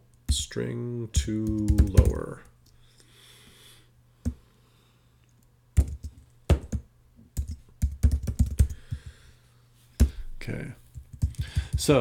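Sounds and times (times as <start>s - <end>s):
computer keyboard typing: 1.2s - 2.4s, 5.8s - 6.8s, 7.4s - 9.1s, 10.9s - 12.0s.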